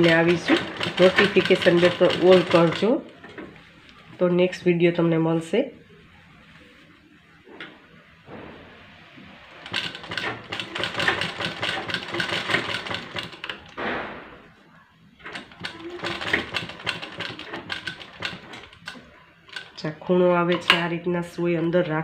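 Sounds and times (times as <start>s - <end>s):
sewing machine stitching: 0.0s - 3.4s, 9.6s - 13.7s, 15.2s - 19.8s.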